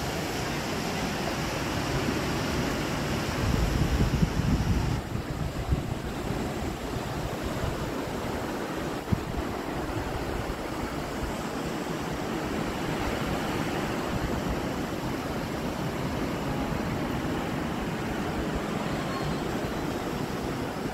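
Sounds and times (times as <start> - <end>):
sea surf breaking: 0.0 - 20.9
wind: 0.0 - 20.9
wind rumble on microphone: 0.7 - 20.9.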